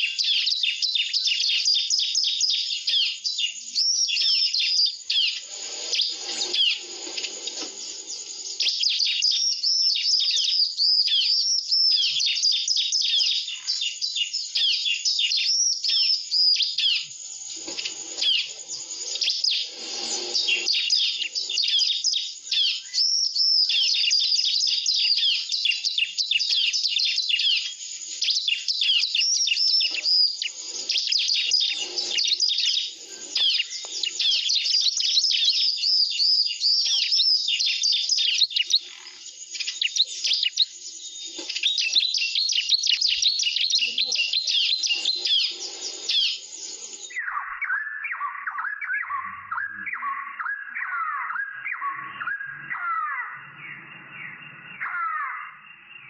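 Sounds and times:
birds chirping and trilling: 0.0 - 56.0.

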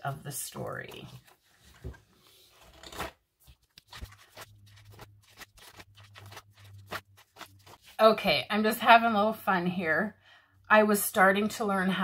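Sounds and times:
paper pages rustling: 0.8 - 8.0.

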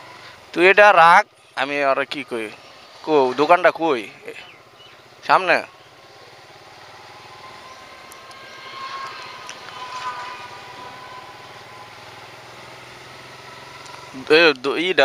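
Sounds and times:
vehicle motor hum and road noise: 0.0 - 15.0
high-pitched whine: 5.2 - 15.0.

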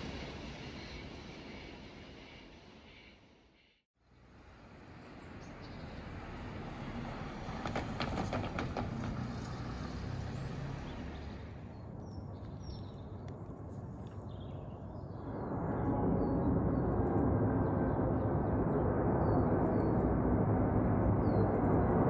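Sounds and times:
road traffic passing: 4.1 - 12.6
low rumble: 11.7 - 22.0.

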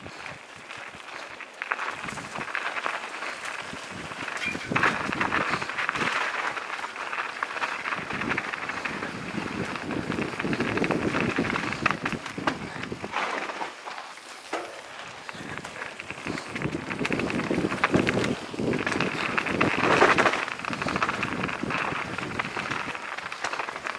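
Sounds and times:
bike rattles and clicks: 0.0 - 23.9
tyres crunching over leaves and stones: 0.0 - 23.9.

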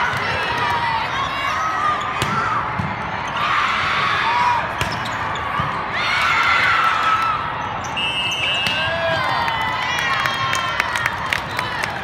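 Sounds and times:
sneakers squeaking on court: 4.8 - 5.7.

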